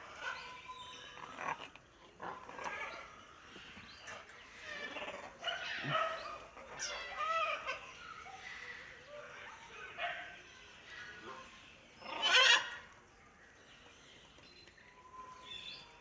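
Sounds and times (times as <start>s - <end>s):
macaws calling: 0.0s - 9.0s, 12.0s - 13.0s.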